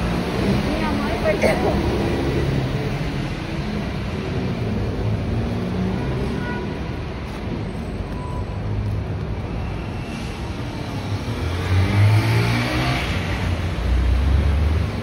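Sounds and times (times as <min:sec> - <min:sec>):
city street traffic drone: 0:00.0 - 0:15.0
vehicle accelerating past: 0:11.0 - 0:15.0.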